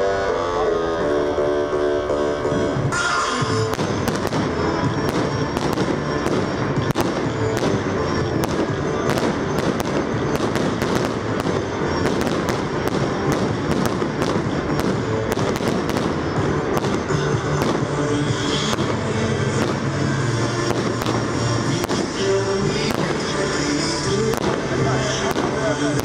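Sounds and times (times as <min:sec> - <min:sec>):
steady background noise: 0:00.0 - 0:26.0
fireworks bangs: 0:02.9 - 0:26.0.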